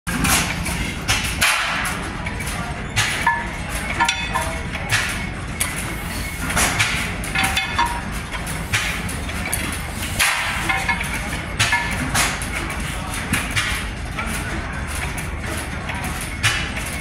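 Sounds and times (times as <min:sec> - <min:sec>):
stationary engines chugging: 0:00.1 - 0:17.0.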